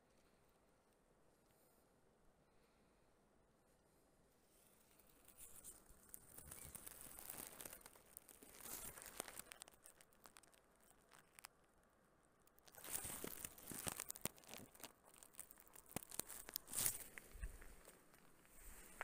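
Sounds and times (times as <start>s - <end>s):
crackling of dry material: 4.4s - 19.0s
scattered clicks: 5.0s - 11.7s.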